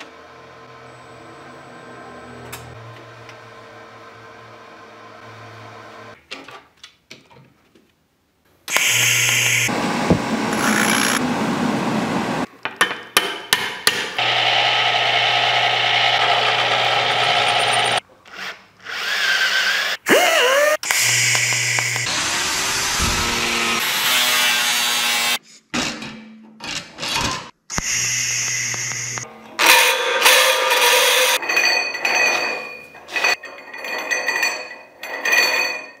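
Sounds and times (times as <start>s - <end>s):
die grinder grinding metal: 8.7s - 11.2s, 14.2s - 18.0s, 19.1s - 25.4s, 27.8s - 34.3s
bench grinder buffing wheel running: 8.7s - 12.2s, 14.2s - 18.0s, 20.9s - 23.9s
cordless drill spinning: 10.5s - 11.2s, 20.6s - 23.8s.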